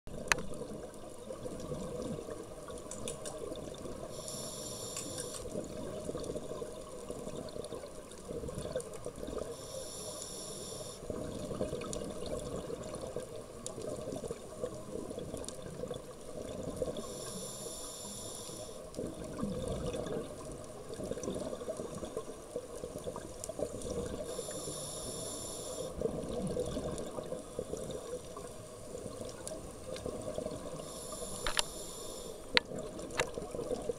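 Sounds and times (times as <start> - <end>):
regulator inhalation hiss: 4.0 - 5.5, 9.6 - 11.1, 17.0 - 18.9, 24.2 - 26.0, 30.7 - 32.6.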